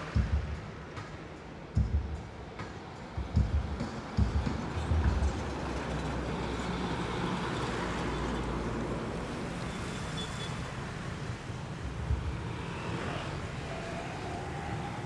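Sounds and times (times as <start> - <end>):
motorcycles and cars passing: 3.1 - 15.0
truck diesel engine drone: 11.4 - 15.0.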